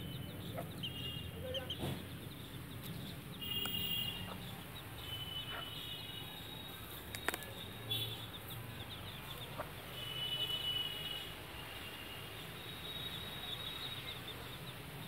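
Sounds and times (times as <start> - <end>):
chicks peeping: 8.3 - 10.0.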